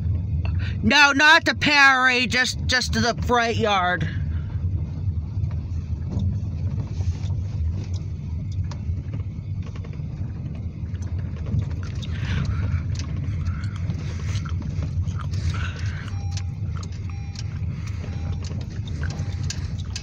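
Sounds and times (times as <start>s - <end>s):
car road rumble on gravel: 0.0s - 20.0s
gravel ticks: 4.6s - 20.0s.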